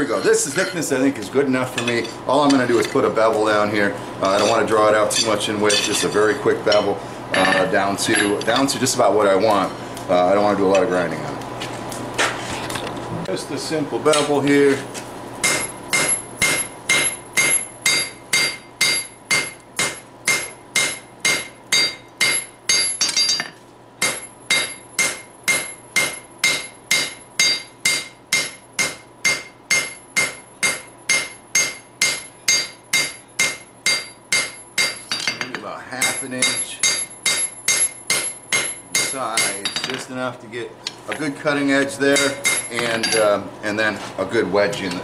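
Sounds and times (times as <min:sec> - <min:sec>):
hammer ringing on anvil: 0:00.0 - 0:00.9, 0:06.7 - 0:08.8, 0:15.4 - 0:40.0, 0:42.2 - 0:43.3.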